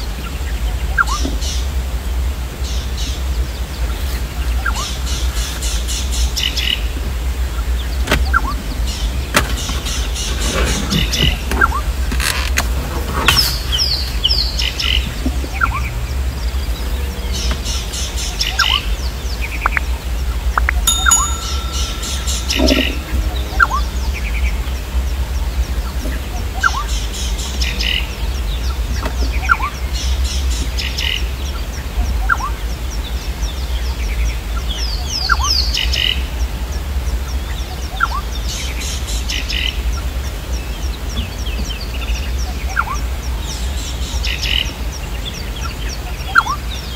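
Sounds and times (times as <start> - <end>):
birds twittering: 13.2 - 46.9.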